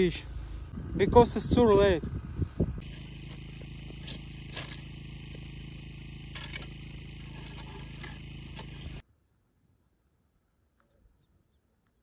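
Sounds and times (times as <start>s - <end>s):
engine hum: 0.0s - 9.0s.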